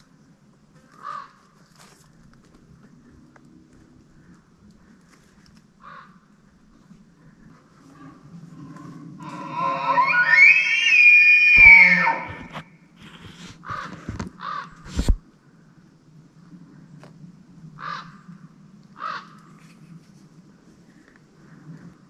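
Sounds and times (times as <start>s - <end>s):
elk bugling: 9.2s - 12.6s
short lower elk calls: 9.2s - 12.6s.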